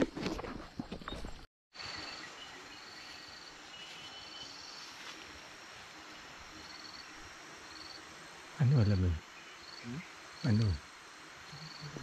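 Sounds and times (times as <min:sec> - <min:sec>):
insect chorus trilling: 0:01.8 - 0:12.0
footsteps on grass: 0:03.0 - 0:05.6.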